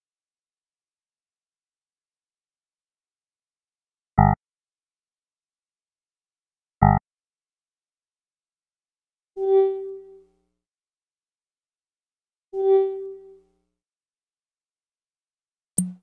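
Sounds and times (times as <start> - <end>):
short electronic beeps: 4.2 - 4.4.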